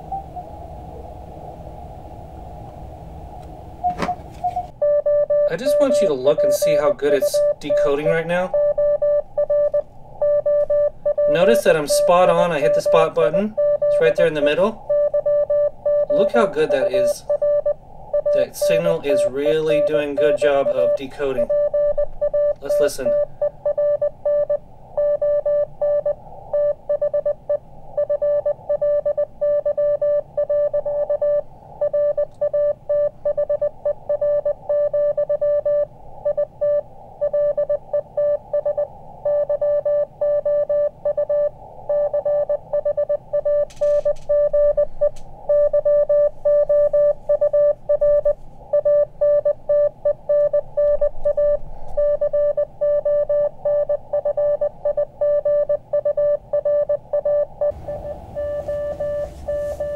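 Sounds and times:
morse code beeps: 3.8 - 59.9
radio band noise hiss: 57.8 - 59.9.

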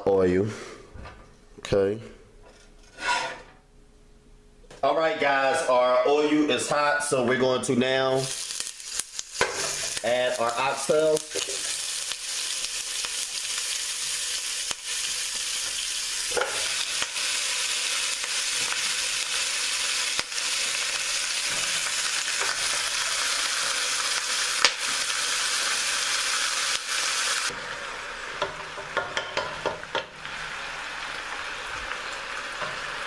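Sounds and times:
meat sizzling in hot oil: 8.2 - 33.0.

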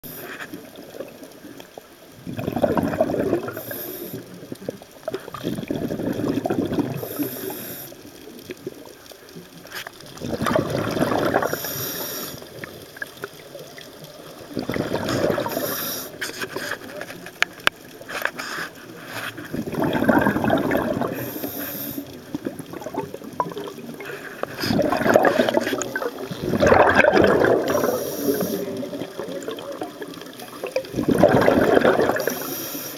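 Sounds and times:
exhaled bubbles gurgling: 0.0 - 32.9
regulator inhale hiss: 3.5 - 4.4, 7.0 - 8.1, 11.4 - 12.5, 15.1 - 16.5, 18.3 - 19.4, 21.1 - 22.2, 27.7 - 28.9, 32.2 - 32.9.

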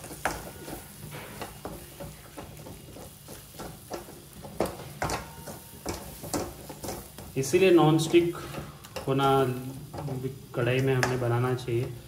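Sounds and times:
spatula scraping a pan: 0.0 - 11.3
faint sizzling: 0.0 - 12.0.

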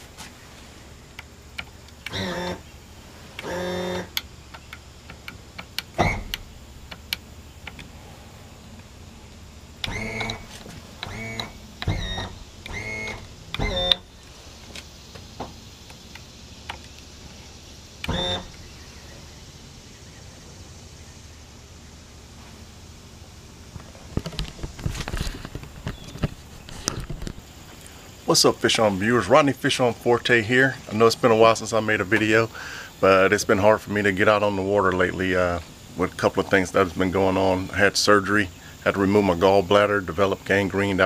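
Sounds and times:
trim motors whining: 0.0 - 22.2
switch clicks: 3.4 - 7.9, 9.8 - 14.1.

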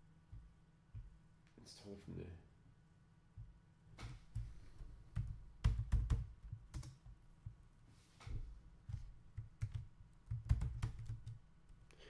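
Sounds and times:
typing on computer keyboard: 5.1 - 7.1, 8.9 - 11.4.

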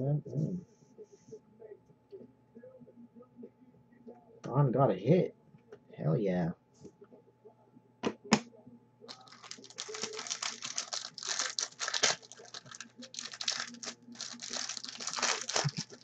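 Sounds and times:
trading cards clicking and crinkling: 9.1 - 16.0.

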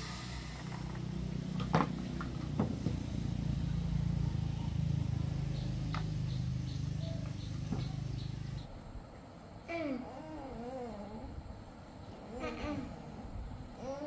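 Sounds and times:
small engine running low: 0.0 - 8.7.

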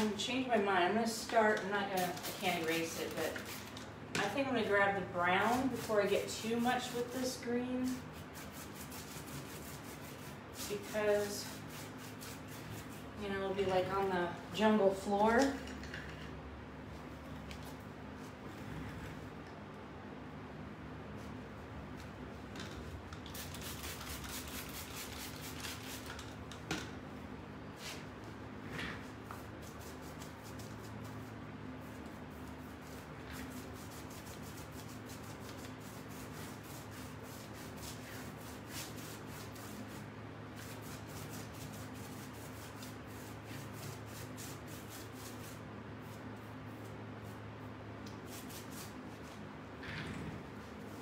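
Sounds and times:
paintbrush scrubbing on paper: 5.4 - 13.3, 23.4 - 26.1, 29.1 - 47.6, 48.2 - 49.4.

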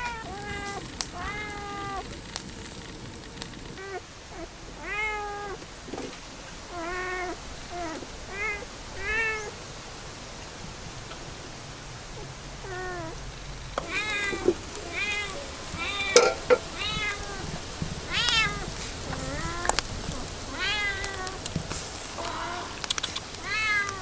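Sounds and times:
cat meowing: 0.0 - 2.6, 3.8 - 5.6, 6.7 - 9.6, 12.2 - 13.2, 13.8 - 24.0.

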